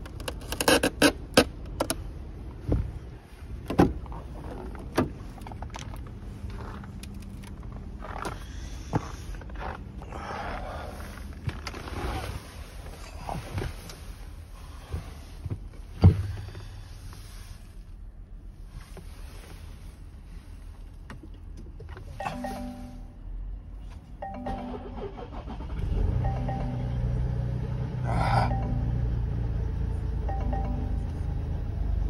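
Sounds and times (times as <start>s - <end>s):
dashboard warning chimes: 22.1s - 23.3s, 24.2s - 25.4s, 26.2s - 27.6s, 28.2s - 29.6s, 30.2s - 31.6s
diesel engine starting: 24.2s - 32.0s.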